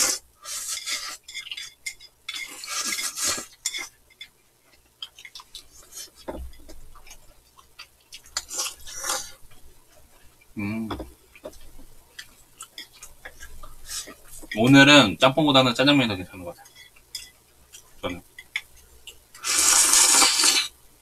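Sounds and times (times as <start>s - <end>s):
noodles slurped: 19.4s - 20.7s.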